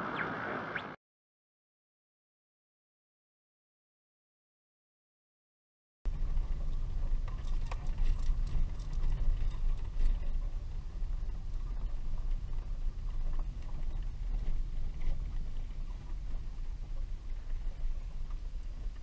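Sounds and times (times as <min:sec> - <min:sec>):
car engine and tyres rumbling: 0:06.1 - 0:19.0
small rattles and clicks: 0:06.1 - 0:19.0.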